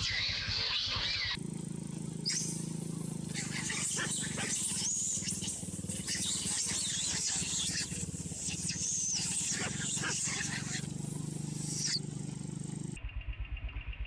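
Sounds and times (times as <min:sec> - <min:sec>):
monkeys screaming: 0:00.0 - 0:01.4, 0:02.2 - 0:12.0
low rapid throbbing hum: 0:01.1 - 0:14.0.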